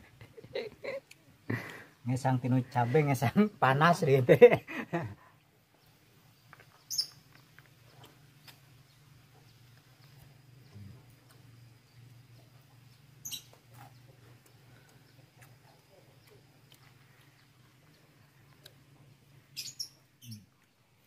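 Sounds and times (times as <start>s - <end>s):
steady low hum: 7.6s - 21.0s.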